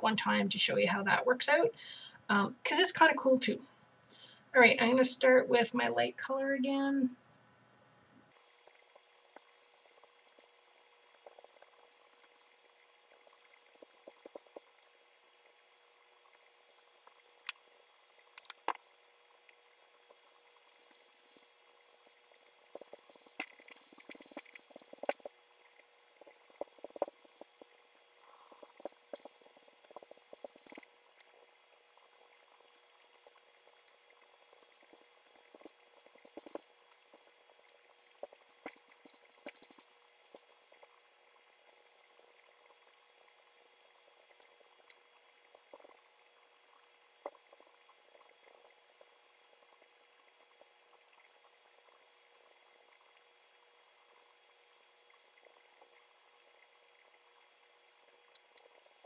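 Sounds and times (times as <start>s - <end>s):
sponge dabbing wet paint: 21.4s - 25.3s.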